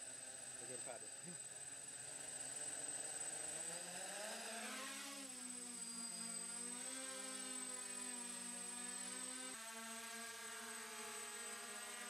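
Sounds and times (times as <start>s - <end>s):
drone motors buzzing: 0.0s - 12.0s.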